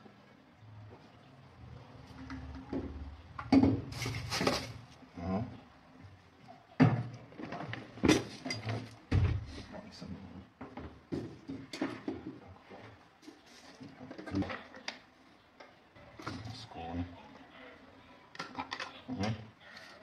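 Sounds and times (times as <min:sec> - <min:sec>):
bottles jars and pots clinking: 0:06.8 - 0:09.0.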